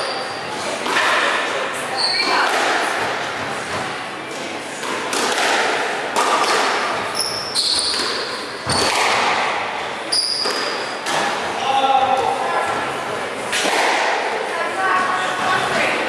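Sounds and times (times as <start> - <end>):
racket hitting squash ball: 0.7 - 11.5, 12.2 - 14.4
shoes squeaking on wooden floor: 7.1 - 9.0.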